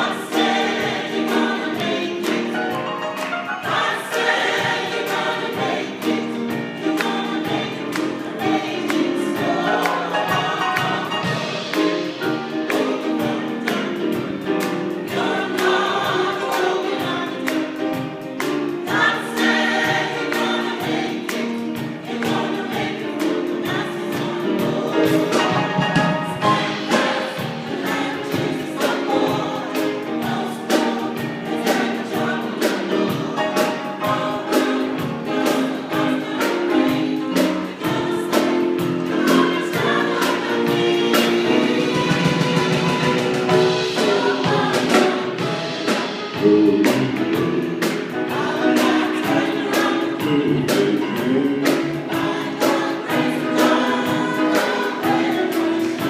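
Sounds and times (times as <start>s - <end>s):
choir singing in harmony: 0.0s - 56.0s
percussive beat: 36.9s - 56.0s.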